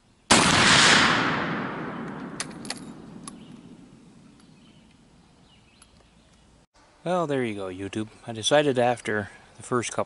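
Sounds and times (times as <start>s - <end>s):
rifle shot echoing: 0.3s - 4.2s.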